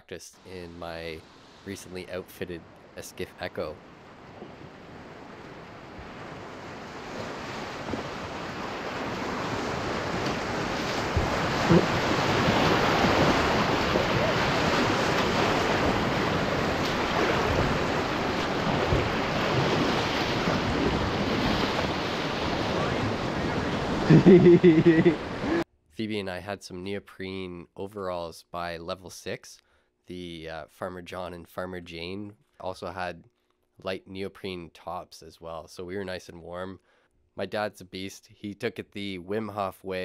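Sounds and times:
sharp water splashes: 4.9 - 24.1
whitewater rapids rushing: 8.6 - 25.6.

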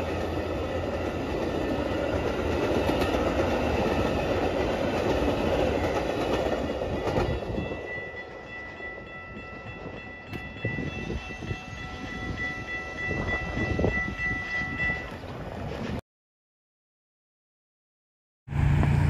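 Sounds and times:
railroad crossing bell ringing: 0.0 - 15.3
train running past on rails: 0.0 - 16.0, 18.5 - 19.0.

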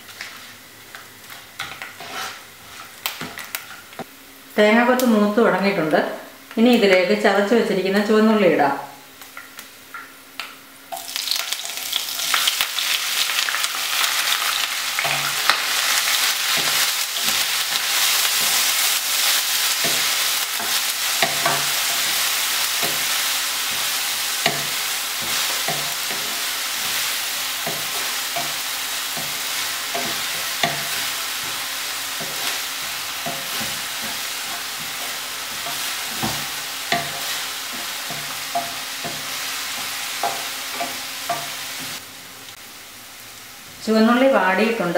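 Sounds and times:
wooden spatula scraping pan: 1.6 - 3.0, 32.2 - 42.0
food sizzling in hot oil: 10.8 - 44.5.

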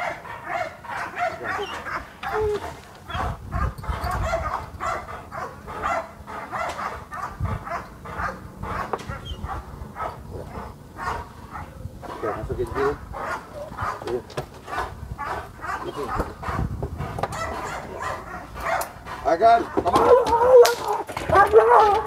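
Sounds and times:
dog barking: 0.0 - 22.0.

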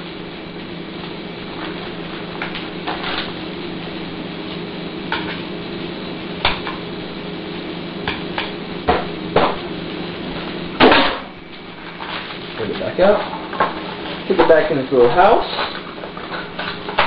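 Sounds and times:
sizzling: 0.0 - 17.0
stove humming: 0.0 - 17.0.

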